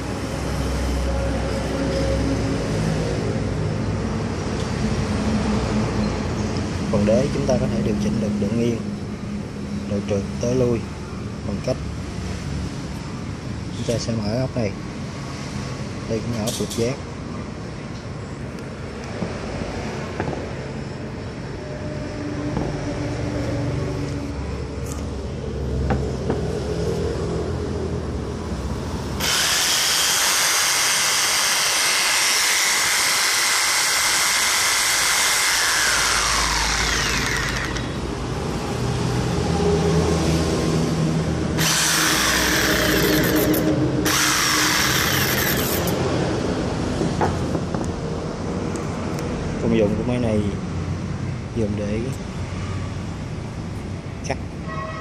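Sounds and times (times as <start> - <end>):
jigsaw running: 29.2 - 37.9, 41.6 - 46.0.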